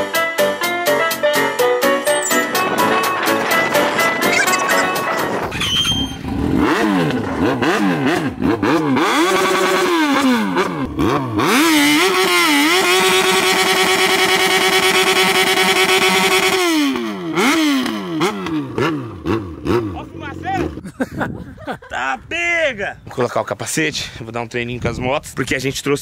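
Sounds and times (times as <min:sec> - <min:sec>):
motorcycle engine revving: 0:05.3 - 0:20.9.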